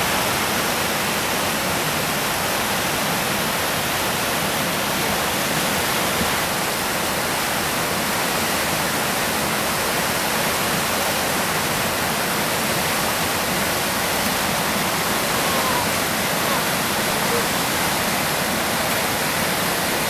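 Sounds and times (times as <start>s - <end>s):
whitewater rushing through rapids: 0.0s - 20.0s.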